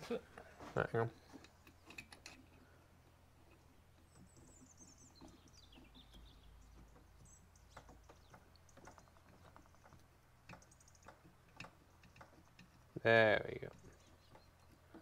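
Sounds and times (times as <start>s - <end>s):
bird twittering: 4.0s - 9.4s.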